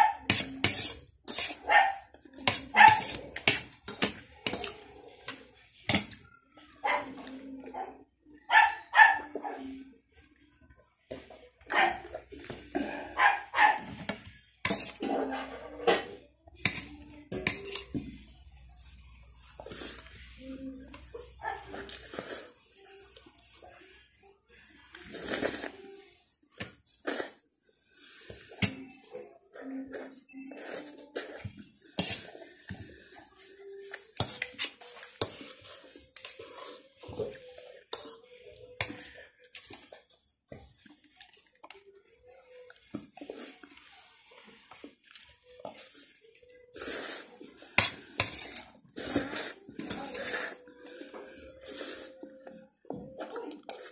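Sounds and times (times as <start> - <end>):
dog barking: 1.6 - 3.1, 6.8 - 7.2, 7.8 - 9.7, 13.2 - 13.9.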